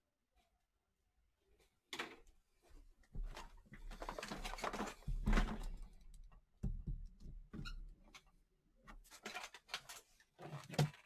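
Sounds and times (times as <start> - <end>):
handling rustling and clatter: 3.2 - 6.2.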